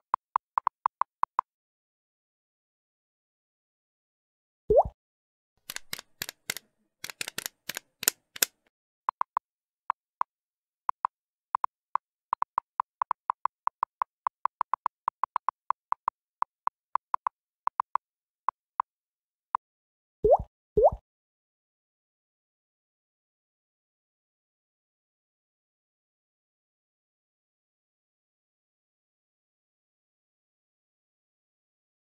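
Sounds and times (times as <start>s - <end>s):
quick sharp clicks: 5.6s - 9.4s.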